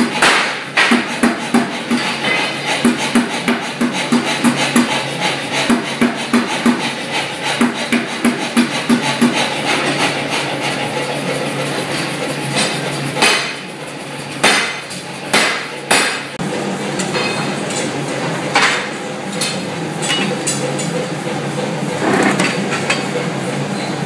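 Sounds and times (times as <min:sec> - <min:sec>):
power hammer striking steel: 0:00.0 - 0:09.5, 0:12.5 - 0:13.7, 0:14.4 - 0:16.4, 0:18.5 - 0:20.9
machine running noise: 0:00.0 - 0:24.0.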